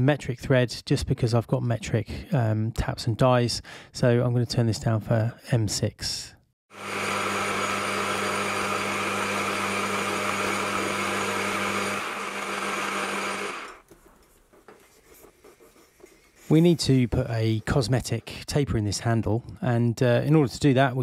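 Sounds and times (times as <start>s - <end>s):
lathe motor hum: 6.8s - 13.8s.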